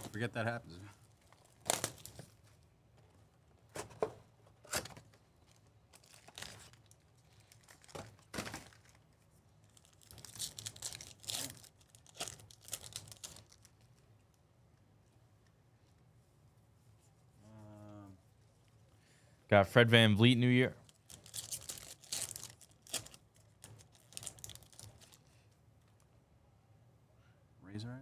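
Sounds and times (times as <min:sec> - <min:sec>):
foil pack crinkling and tearing: 0:01.2 - 0:02.4, 0:04.7 - 0:13.9, 0:20.8 - 0:25.3
plastic wrap tearing: 0:01.2 - 0:02.4, 0:05.9 - 0:13.9, 0:20.8 - 0:25.3.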